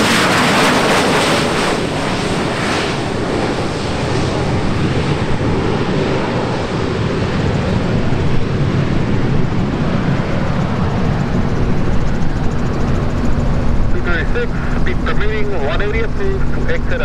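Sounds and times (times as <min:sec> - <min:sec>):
jet engines rumbling: 0:00.0 - 0:17.0
wind buffeting microphone: 0:00.3 - 0:16.6.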